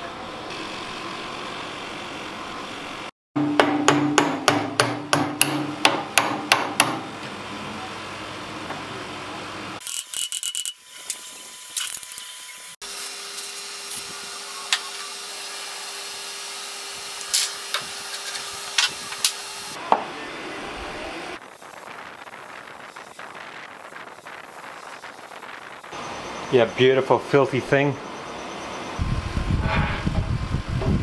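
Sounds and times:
rubbing and handling noise: 21.4s - 25.9s.

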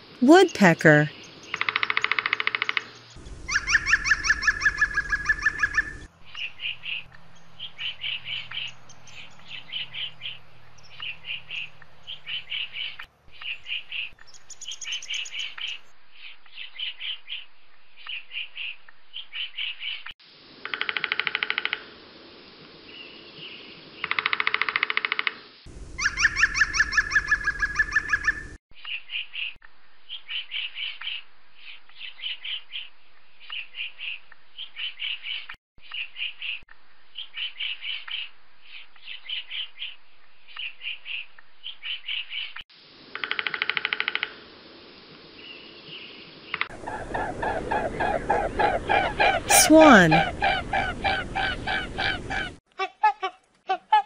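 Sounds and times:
woodpecker calls: 1.4s - 7.0s, 24.0s - 25.4s, 43.2s - 44.4s
woodpecker drumming on wood: 1.6s - 3.0s, 20.6s - 21.9s, 24.0s - 25.4s, 43.2s - 44.4s.

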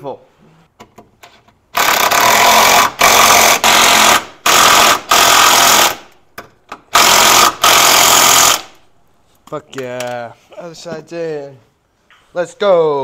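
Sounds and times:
impact wrench hammering bolts: 0.8s - 8.7s.

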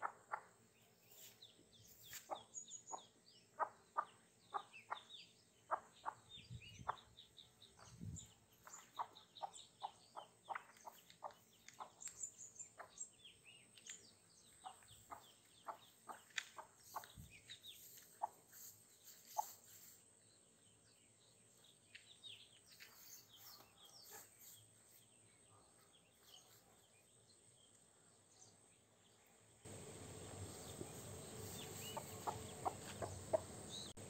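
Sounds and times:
ducklings peeping: 2.0s - 13.4s, 14.5s - 18.4s, 29.7s - 34.0s
hen clucking softly: 29.8s - 33.9s.

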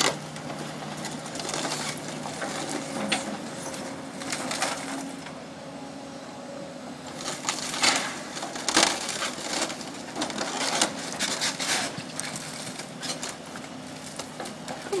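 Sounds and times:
excavator engine running: 0.0s - 15.0s
debris crunching crashes: 7.2s - 13.4s.

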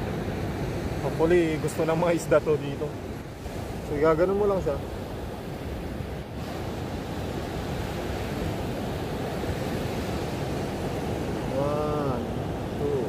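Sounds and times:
surf breaking on beach: 0.0s - 13.0s
wind on microphone: 2.8s - 13.0s.

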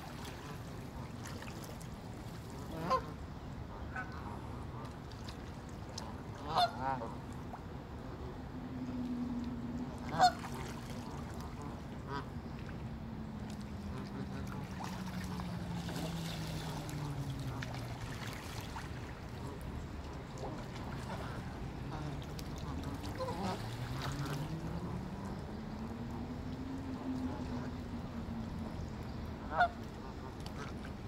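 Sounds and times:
geese calling: 6.4s - 7.1s, 10.1s - 10.5s, 29.5s - 29.8s.

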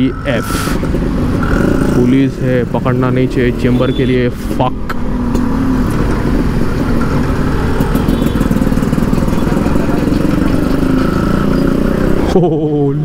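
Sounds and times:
two-stroke motorcycle engine idling: 6.2s - 12.1s.

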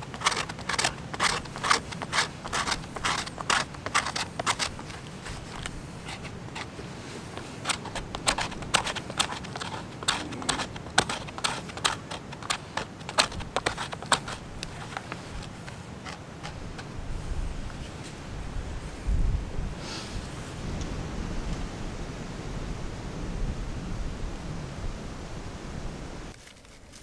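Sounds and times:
knife scraping bark: 0.0s - 16.9s.

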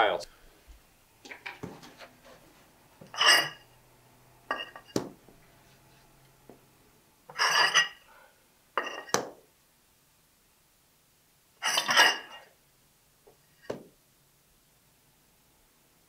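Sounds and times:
tiles clinking and scraping: 1.2s - 3.6s, 4.5s - 5.1s, 7.3s - 8.1s, 8.8s - 9.3s, 11.6s - 12.6s.

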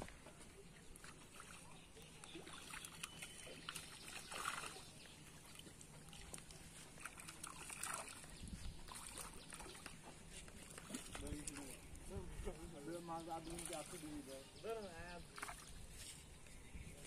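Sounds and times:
fish splashing in water: 0.8s - 11.9s, 15.2s - 15.8s.

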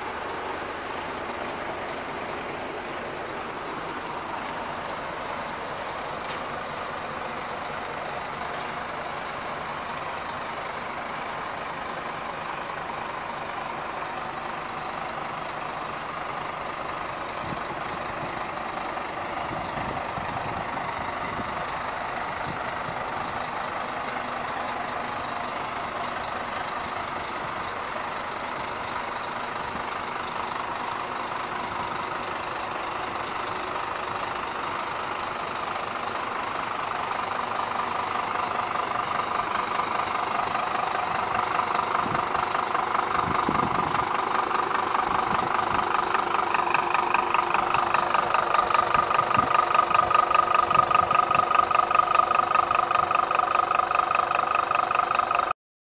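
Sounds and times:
diesel truck engine idling: 0.0s - 55.6s.

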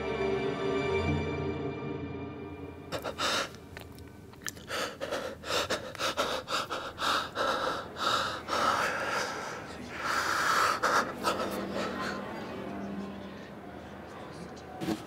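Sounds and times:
music: 0.0s - 4.2s, 11.0s - 14.2s.

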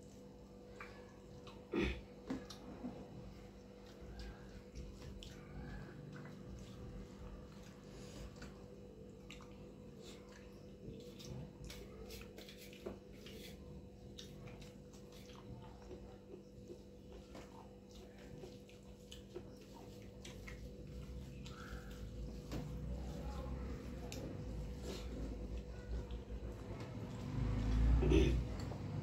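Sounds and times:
chewing and mouth smacks: 0.0s - 2.8s, 3.4s - 22.7s
faint steady hum: 0.0s - 29.0s.

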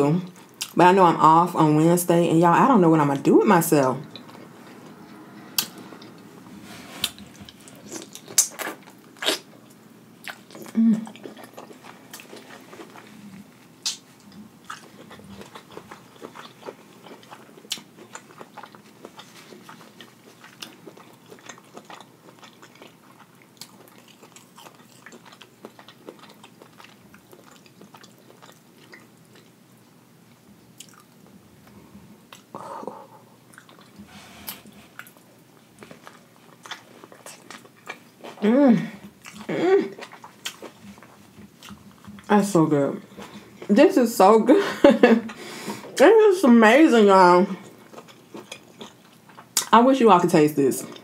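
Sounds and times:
chewing and biting food: 7.0s - 29.6s, 30.3s - 32.5s, 33.5s - 34.0s, 34.9s - 38.4s, 39.0s - 42.3s, 47.6s - 49.7s
wet mouth clicks and lip smacks: 13.8s - 14.0s.

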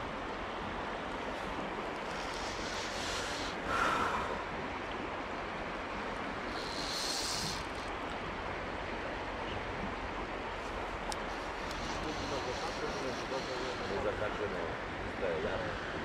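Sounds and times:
flowing river water: 0.0s - 16.0s.

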